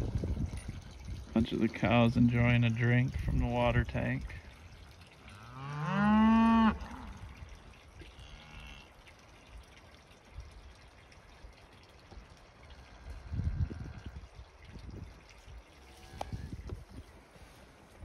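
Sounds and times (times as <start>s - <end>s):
cattle mooing: 5.3s - 7.2s, 8.1s - 8.9s.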